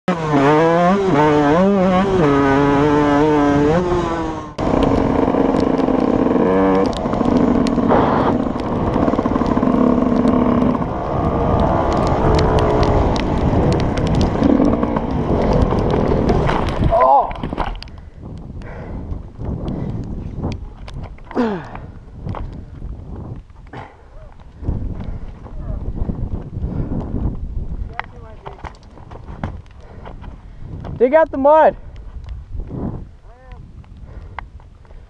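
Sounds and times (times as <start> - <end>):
dirt bike engine revving: 0.1 - 16.8.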